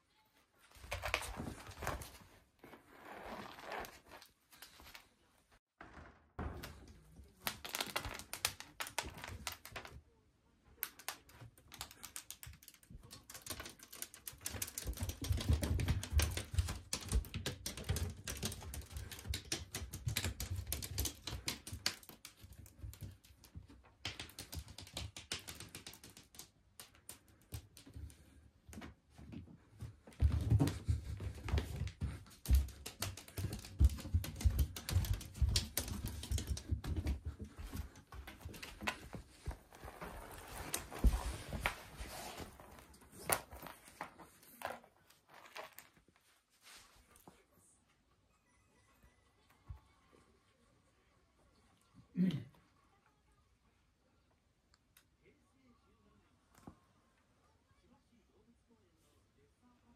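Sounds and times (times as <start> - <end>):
cat paws tapping on floor: 10.8 - 46.0.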